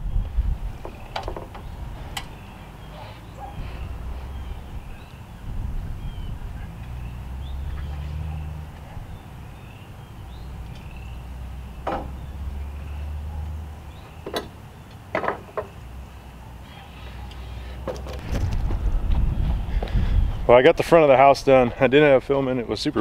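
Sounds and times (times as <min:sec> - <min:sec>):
wind buffeting microphone: 0:00.0 - 0:11.4, 0:18.0 - 0:23.0
small birds chirping: 0:00.0 - 0:20.6.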